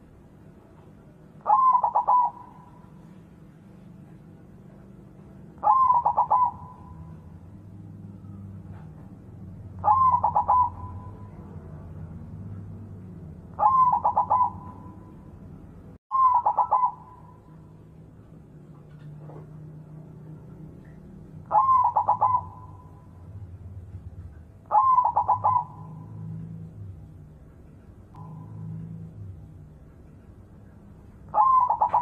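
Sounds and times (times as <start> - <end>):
dove cooing: 1.4 - 3.2, 5.6 - 9.0, 9.8 - 11.9, 13.5 - 15.2, 16.1 - 17.6, 21.4 - 23.4, 24.6 - 26.6, 31.3 - 32.0.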